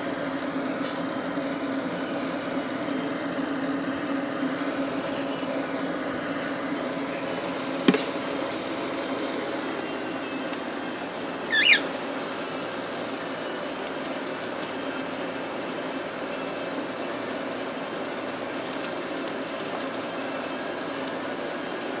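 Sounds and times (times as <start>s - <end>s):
cockatiel chirp: 11.5s - 11.9s.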